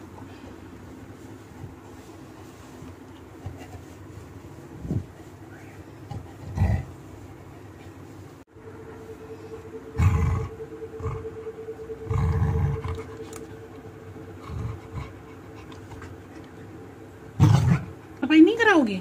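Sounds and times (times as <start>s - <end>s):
dog grumbling groans: 6.0s - 7.0s, 9.9s - 16.8s.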